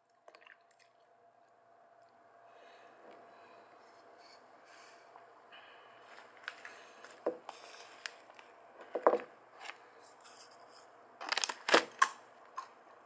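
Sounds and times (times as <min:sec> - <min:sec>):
plastic bag crinkling: 0:11.2 - 0:12.2.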